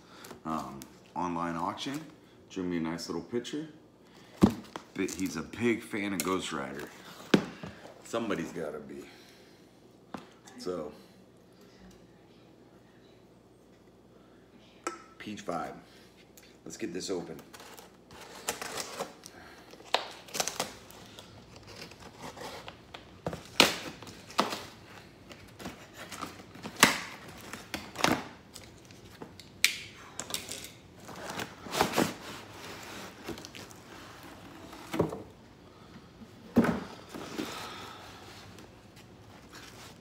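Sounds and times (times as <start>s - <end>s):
cardboard rustling and crinkling: 31.0s - 35.2s.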